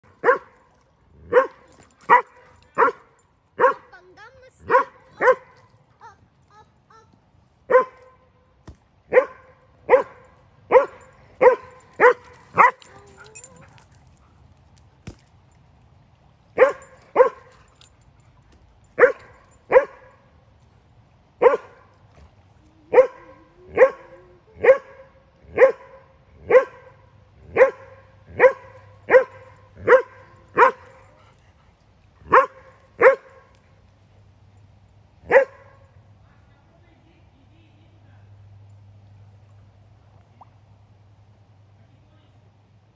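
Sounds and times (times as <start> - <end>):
dog barking: 0.2 - 0.6, 1.3 - 3.9, 4.6 - 5.6, 7.7 - 8.2, 9.1 - 13.6, 16.6 - 17.5, 19.0 - 20.2, 21.4 - 21.8, 22.9 - 31.0, 32.2 - 33.5, 35.3 - 35.8.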